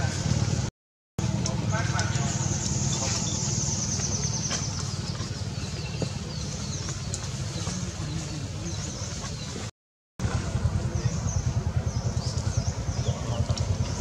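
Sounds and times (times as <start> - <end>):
bird chirps: 2.3 - 9.6, 10.9 - 14.0
small engine running: 10.2 - 14.0.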